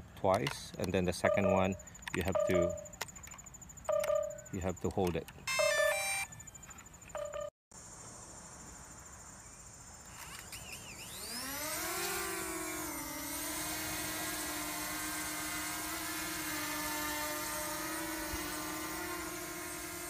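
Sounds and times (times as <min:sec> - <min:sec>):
short beep: 0:01.3 - 0:03.0, 0:05.5 - 0:06.3
drone propellers whining: 0:10.2 - 0:20.0.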